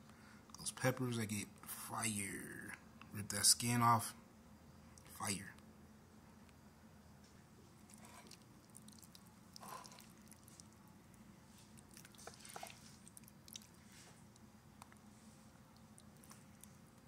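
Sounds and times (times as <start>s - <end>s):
low steady hum: 0.0s - 17.0s
food squishing in a skillet: 7.8s - 16.8s.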